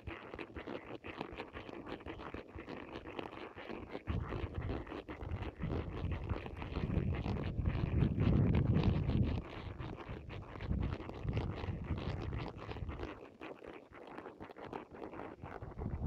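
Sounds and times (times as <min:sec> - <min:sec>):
wind rumble on microphone: 0:04.1 - 0:13.2, 0:15.4 - 0:16.0.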